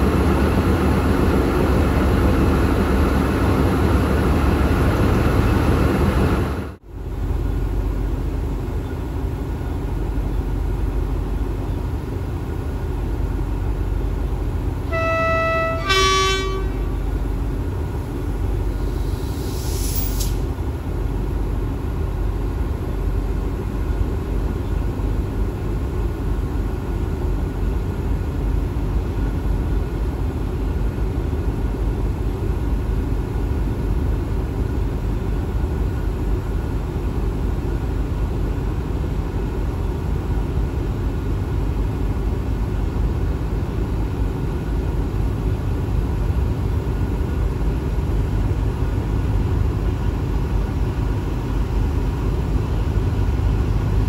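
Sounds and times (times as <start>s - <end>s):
diesel locomotive idling: 0.0s - 54.0s
locomotive horn: 14.8s - 17.1s.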